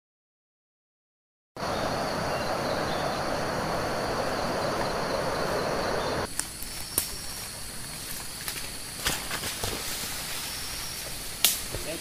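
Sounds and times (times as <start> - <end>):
broad rushing noise: 1.6 - 6.3
high-pitched insect drone: 1.6 - 8.9.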